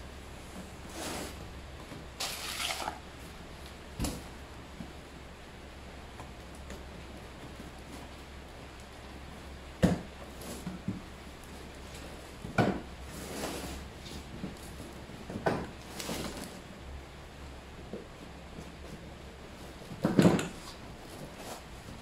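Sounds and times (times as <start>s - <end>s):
cardboard rustling and scraping: 0.6s - 3.3s, 13.0s - 16.6s, 18.6s - 22.0s.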